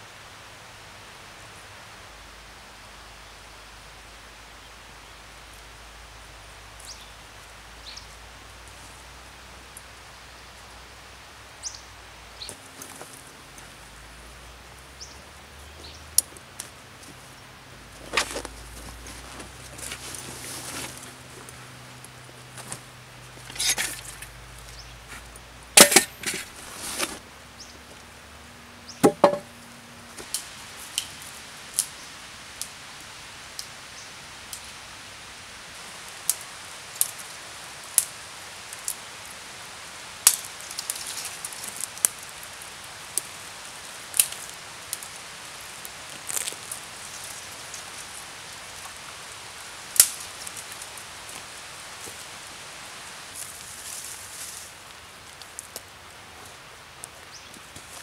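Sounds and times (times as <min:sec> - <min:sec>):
dry wood cracking and snapping: 0:40.2 - 0:42.4, 0:44.1 - 0:48.0, 0:49.9 - 0:51.4.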